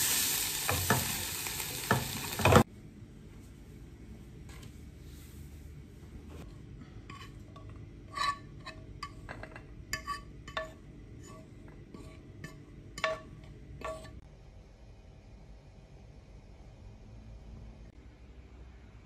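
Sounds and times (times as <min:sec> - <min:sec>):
utensil clinking on pan and plate: 0:07.0 - 0:14.2.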